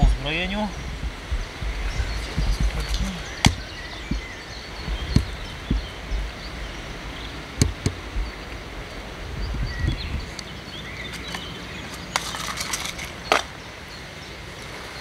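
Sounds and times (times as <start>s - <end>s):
wind on microphone: 0.0s - 10.6s
birds chirping faintly: 0.0s - 15.0s
fishing tackle clicks: 11.2s - 13.5s.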